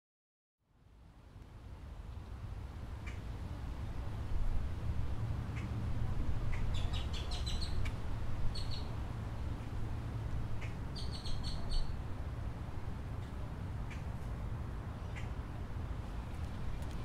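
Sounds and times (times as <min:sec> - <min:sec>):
low outdoor rumble: 0:00.7 - 0:17.0
small bird chirping: 0:06.5 - 0:07.9, 0:08.5 - 0:08.9, 0:10.6 - 0:12.0.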